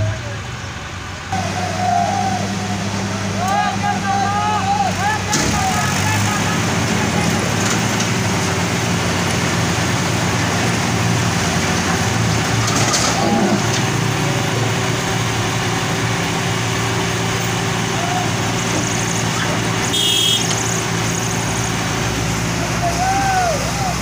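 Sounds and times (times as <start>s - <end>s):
heavy diesel engines running: 0.0s - 24.0s.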